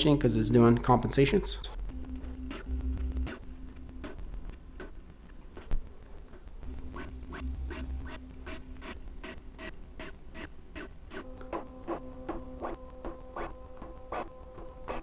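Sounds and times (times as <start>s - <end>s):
stepper motor tones: 1.9s - 4.5s.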